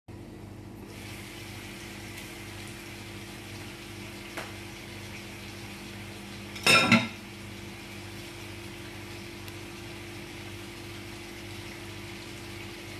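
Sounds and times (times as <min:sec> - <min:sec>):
vegetables sizzling in frying pan: 0:00.9 - 0:12.9
cookware clatter: 0:06.6 - 0:07.2.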